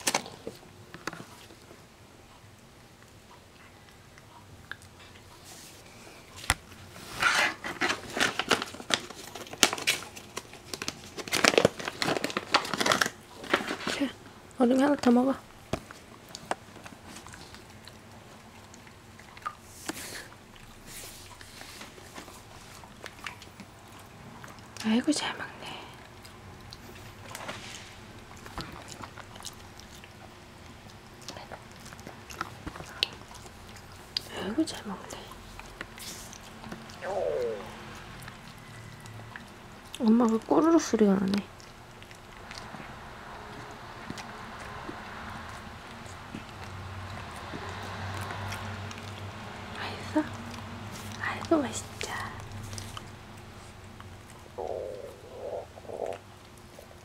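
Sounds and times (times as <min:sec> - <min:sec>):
dog chewing food: 0:00.0 - 0:25.0, 0:25.8 - 0:57.0
plastic bag crinkling: 0:07.2 - 0:14.2.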